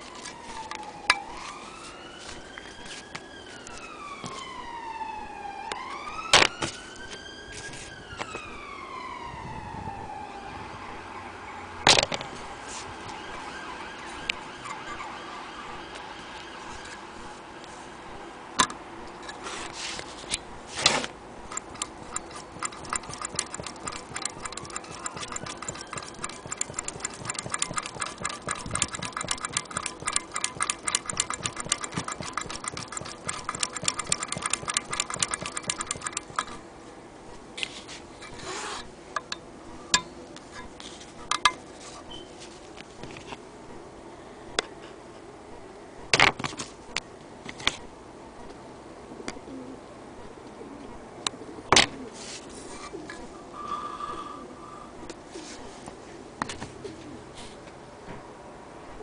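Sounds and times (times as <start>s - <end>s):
sewing machine stitching: 21.5s - 36.6s.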